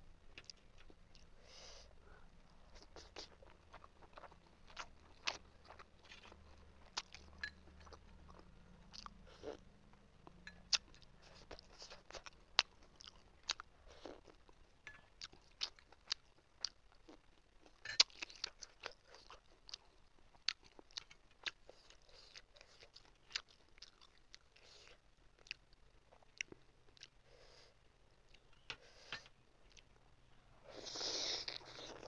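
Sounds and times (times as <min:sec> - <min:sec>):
chewing and mouth sounds: 0:02.7 - 0:09.6, 0:10.6 - 0:27.2.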